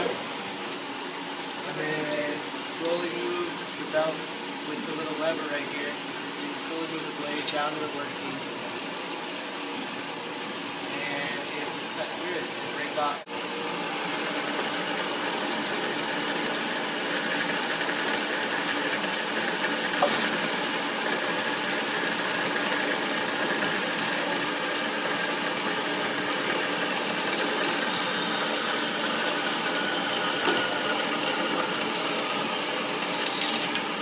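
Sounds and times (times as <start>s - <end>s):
band saw cutting metal: 0.0s - 0.6s, 19.4s - 34.0s.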